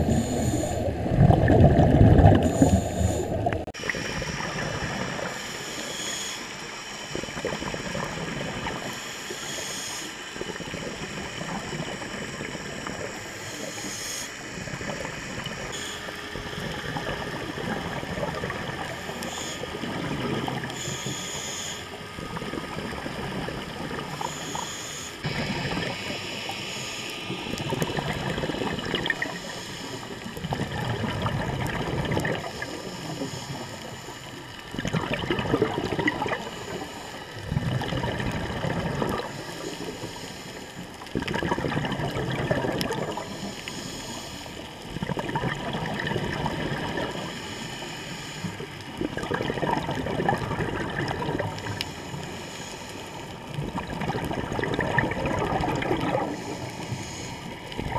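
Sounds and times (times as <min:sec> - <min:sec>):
bubbles gurgling: 0:00.0 - 0:05.4, 0:16.4 - 0:20.8, 0:22.1 - 0:24.4, 0:25.2 - 0:26.6, 0:27.3 - 0:33.8, 0:34.6 - 0:39.9, 0:40.9 - 0:43.6, 0:44.8 - 0:47.3, 0:48.6 - 0:52.2, 0:53.2 - 0:57.9
diver breathing through regulator: 0:00.0 - 0:06.4, 0:24.2 - 0:30.8, 0:38.9 - 0:40.9, 0:43.0 - 0:44.9, 0:46.6 - 0:49.0, 0:51.5 - 0:53.8, 0:55.8 - 0:57.9.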